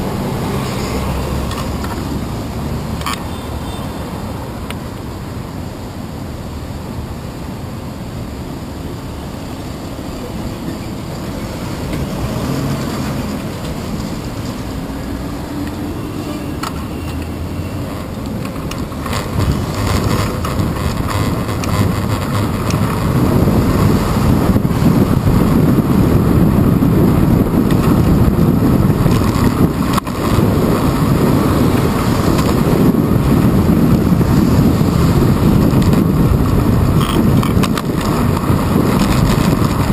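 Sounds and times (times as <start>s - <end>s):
city street traffic: 0.0s - 39.9s
wind on microphone: 9.8s - 39.9s.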